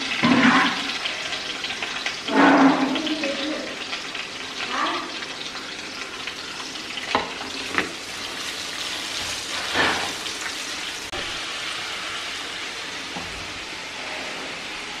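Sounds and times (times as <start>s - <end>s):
onions sizzling in oil: 0.0s - 15.0s
spatula scraping a pan: 2.3s - 3.1s, 8.4s - 10.3s.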